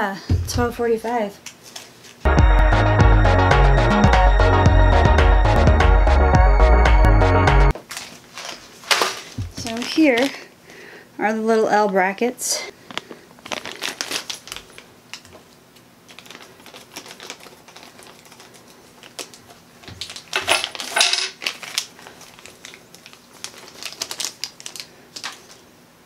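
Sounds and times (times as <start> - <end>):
plastic bag rustling: 7.8 - 10.5, 12.9 - 15.4, 16.0 - 25.7.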